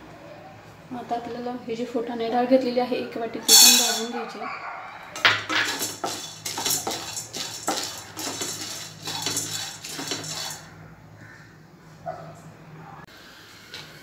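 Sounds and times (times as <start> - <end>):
grains rattling across a pan: 3.5 - 4.1, 5.2 - 10.7.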